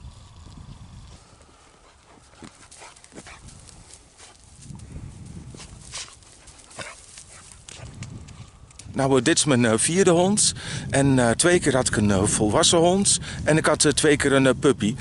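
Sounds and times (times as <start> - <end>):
puppy rustling in dry grass: 0.7 - 9.2.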